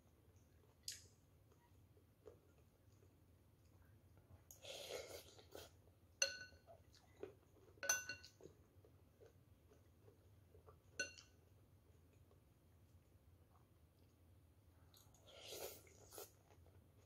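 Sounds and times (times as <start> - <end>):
metal spoon clinking against bowl: 6.2 - 6.7, 7.8 - 8.4, 11.0 - 11.3.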